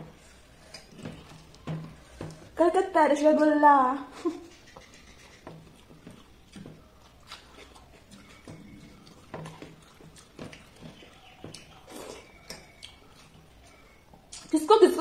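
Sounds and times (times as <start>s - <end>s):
wet chewing sounds: 4.4s - 14.6s.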